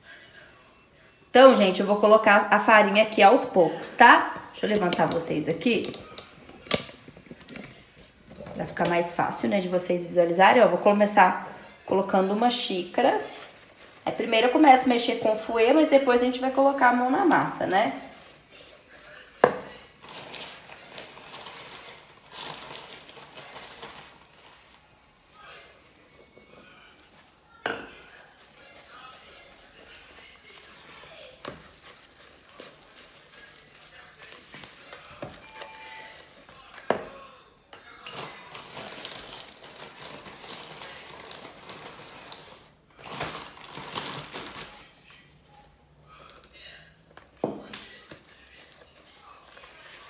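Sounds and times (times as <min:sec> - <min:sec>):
whisk scraping and swishing in bowl: 0:27.9 - 0:36.9.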